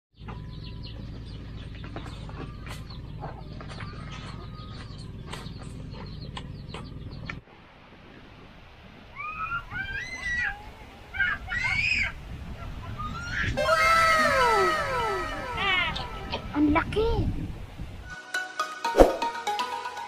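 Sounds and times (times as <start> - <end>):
chickens and birds calling: 0.2 - 7.4, 9.2 - 16.8
high rising squeals: 13.0 - 16.6.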